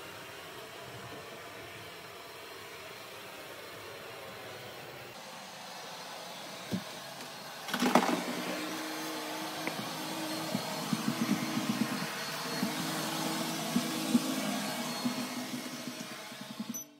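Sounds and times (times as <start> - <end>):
robot vacuum whirring: 5.2 - 16.9.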